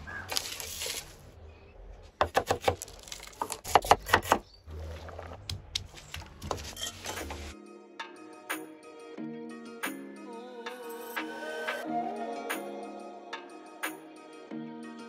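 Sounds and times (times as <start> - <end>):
knife chopping on wooden board: 2.2 - 2.9, 3.6 - 4.5.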